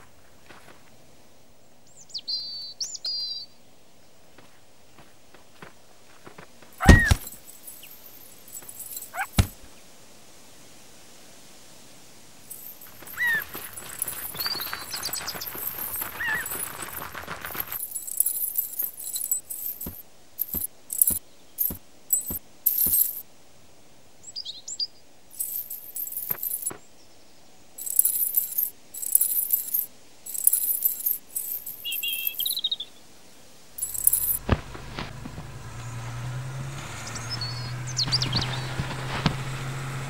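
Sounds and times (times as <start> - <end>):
trap chain jangling: 6.8 - 9.6, 12.5 - 23.2, 25.3 - 26.8, 27.8 - 32.6, 33.8 - 34.4
bird chirps: 31.8 - 33.0
car engine humming: 33.8 - 40.0.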